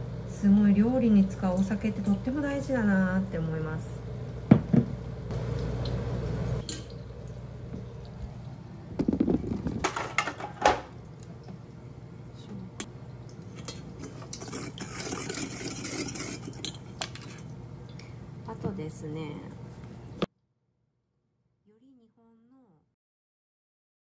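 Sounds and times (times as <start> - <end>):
liquid pouring: 6.6 - 10.0, 13.0 - 18.2.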